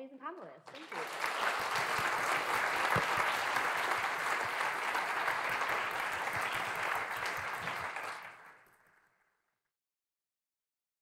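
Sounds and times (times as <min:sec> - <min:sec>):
audience applause: 0:00.7 - 0:08.9.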